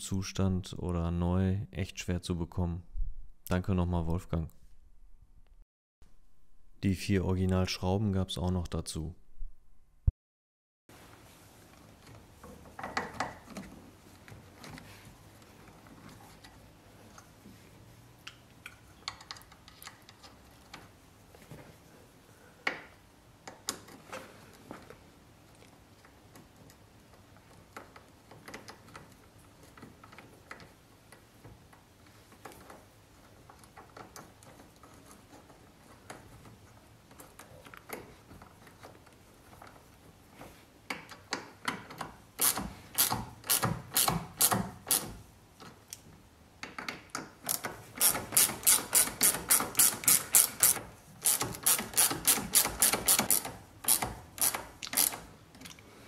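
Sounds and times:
small parts clicking and tapping: 18.2 - 20.9, 40.9 - 55.8
ratcheting screwdriver clicking: 42.4 - 45.1, 47.5 - 55.3.

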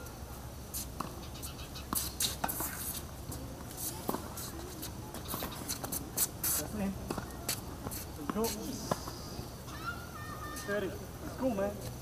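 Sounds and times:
shoes scuffing on court: 0.7 - 9.2.

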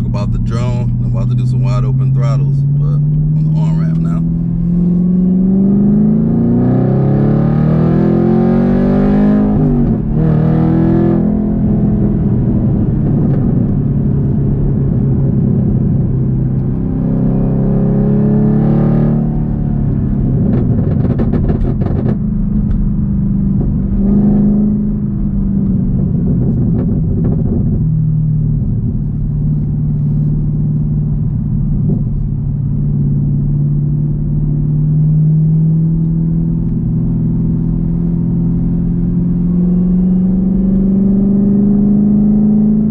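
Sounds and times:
car engine revving: 0.0 - 15.8, 28.6 - 42.9
crackling exhaust pops: 20.5 - 22.9.

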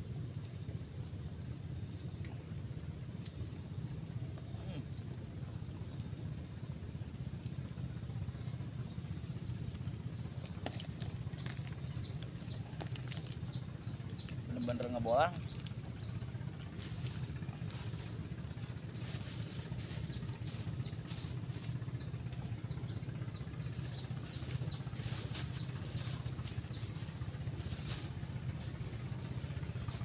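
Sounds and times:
steady low rumble: 0.0 - 30.0
small birds chirping: 3.2 - 30.0
plastic bag crinkling: 10.8 - 13.4.

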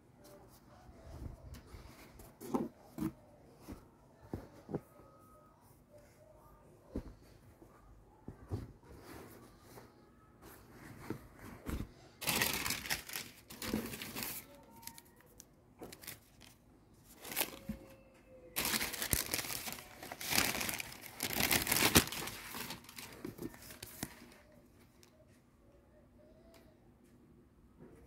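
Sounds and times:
tissue paper crinkling: 10.7 - 15.1, 15.9 - 17.8, 18.6 - 24.5.

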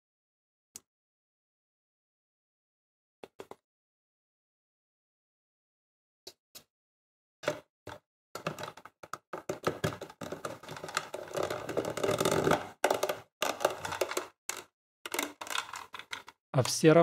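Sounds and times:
plastic clicks: 8.4 - 16.8
plastic scraping: 8.4 - 16.9.

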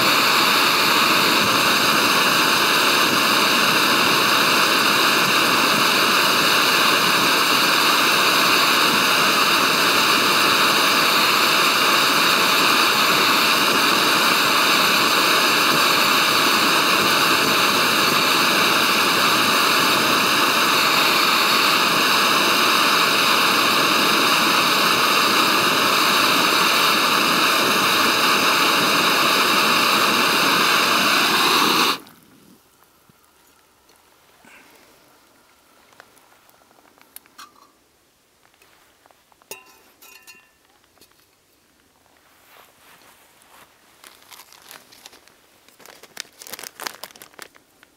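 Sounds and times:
gas stove hissing: 0.0 - 32.2.

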